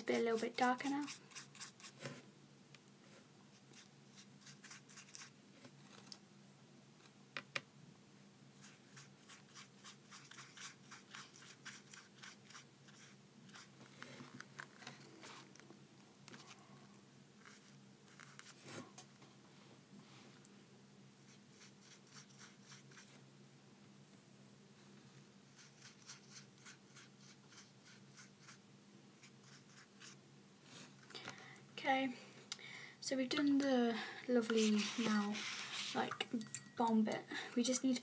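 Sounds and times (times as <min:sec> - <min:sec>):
paintbrush strokes on paper: 0:00.1 - 0:02.2, 0:17.4 - 0:18.9, 0:21.2 - 0:23.2, 0:25.5 - 0:28.6, 0:29.2 - 0:30.9, 0:34.3 - 0:36.2
low steady hum: 0:12.2 - 0:38.0.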